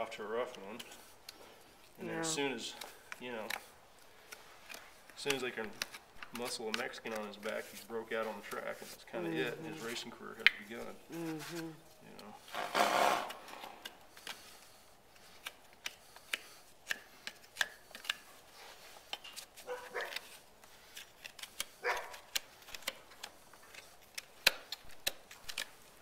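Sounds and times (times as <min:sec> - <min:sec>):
hoof knife cutting and scraping: 0:11.4 - 0:26.0.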